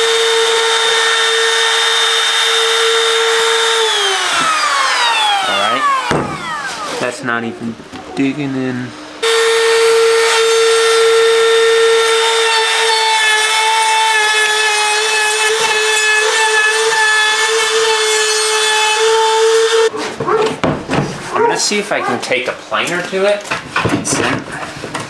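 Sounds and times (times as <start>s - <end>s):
router whining: 0.0s - 8.1s, 9.2s - 19.9s.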